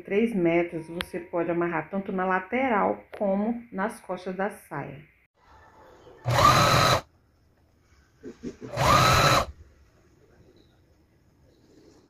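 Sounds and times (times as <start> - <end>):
sewing machine stitching: 6.2 - 7.1, 8.6 - 9.5.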